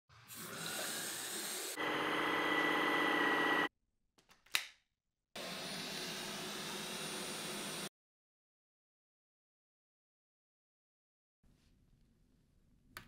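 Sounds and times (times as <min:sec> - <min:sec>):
vacuum motor whine: 0:01.6 - 0:03.7.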